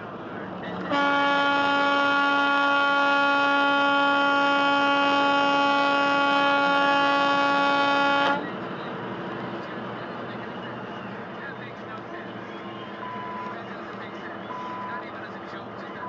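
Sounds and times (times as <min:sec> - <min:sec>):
truck horn long blast: 0:00.8 - 0:08.5.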